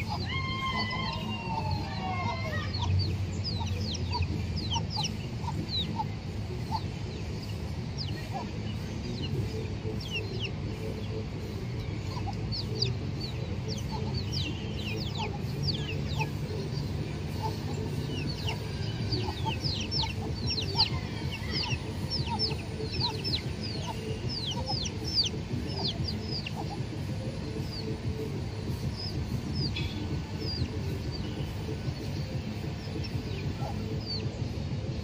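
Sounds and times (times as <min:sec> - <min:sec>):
chicken clucking: 0:00.0 - 0:34.4.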